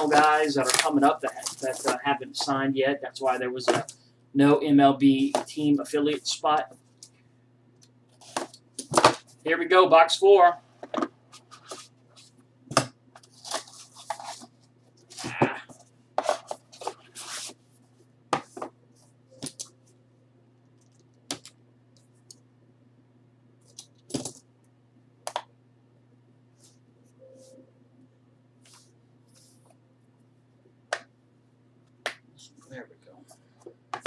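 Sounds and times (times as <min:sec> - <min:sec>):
rustling and peeling wrapper: 0:00.0 - 0:02.0.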